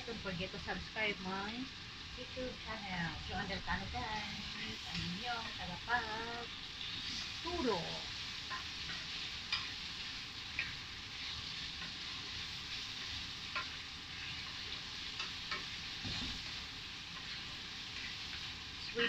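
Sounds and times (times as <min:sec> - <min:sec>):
meat sizzling in frying pan: 0:00.0 - 0:19.0.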